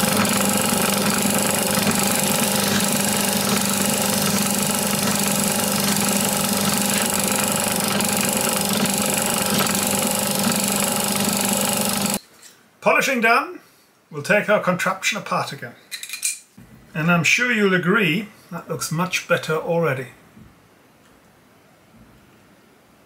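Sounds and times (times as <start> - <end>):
abrasive paper rushing hiss: 0.0 - 12.2
drill press motor hum: 0.0 - 12.2.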